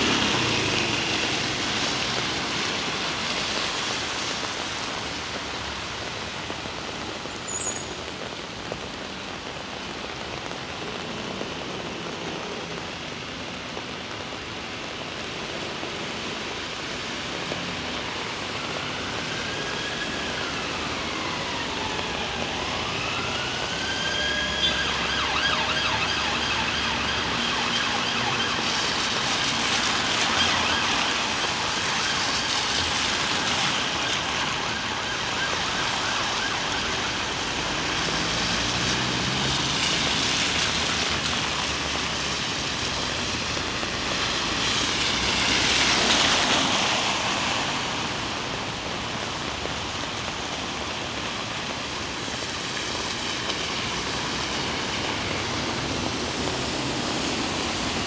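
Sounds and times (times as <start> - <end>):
emergency vehicle siren: 0.0 - 58.0
heavy rain hiss: 36.9 - 58.0.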